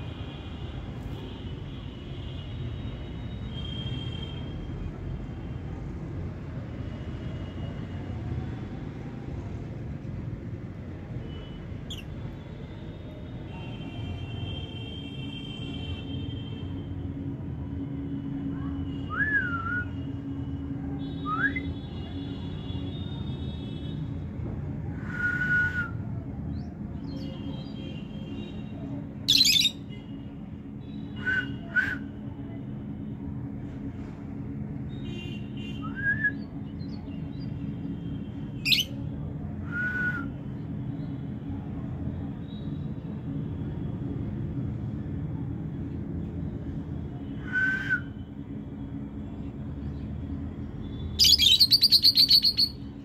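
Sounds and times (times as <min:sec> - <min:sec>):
bird chirps: 0:29.3 - 0:29.8, 0:51.2 - 0:52.8
lovebirds calling: 0:29.3 - 0:29.8, 0:51.2 - 0:52.8.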